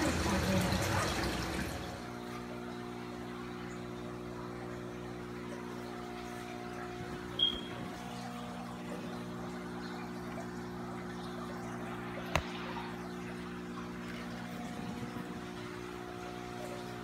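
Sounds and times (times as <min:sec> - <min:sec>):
aquarium equipment humming: 0:00.0 - 0:17.0
water trickling and splashing: 0:00.0 - 0:17.0.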